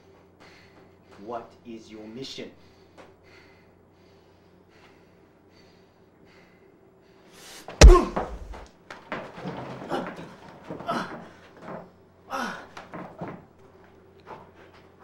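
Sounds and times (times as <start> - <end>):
man gasping and groaning: 7.8 - 8.6
thud of a blow: 7.8 - 8.6.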